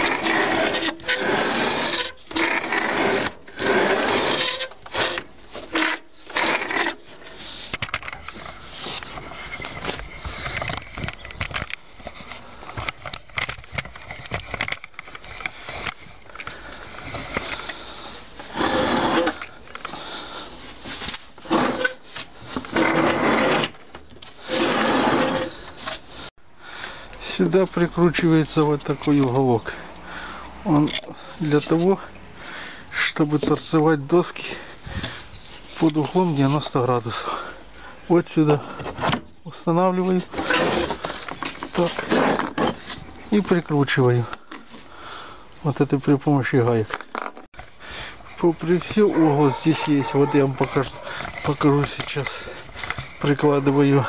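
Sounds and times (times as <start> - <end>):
wooden bed scraping on metal frame: 0.0 - 7.7, 16.9 - 26.3, 40.0 - 43.4, 48.4 - 54.0
handling clicks and knocks: 7.7 - 17.8, 48.5 - 54.0.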